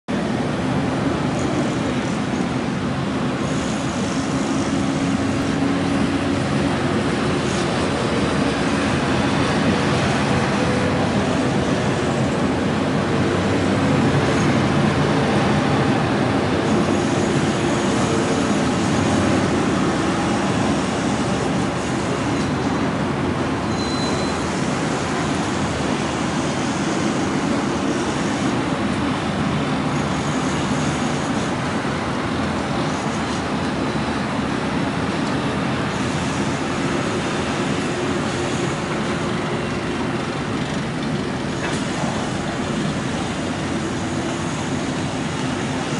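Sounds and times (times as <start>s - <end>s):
city traffic rumble: 0.0s - 45.9s
brief high tone: 23.7s - 24.4s.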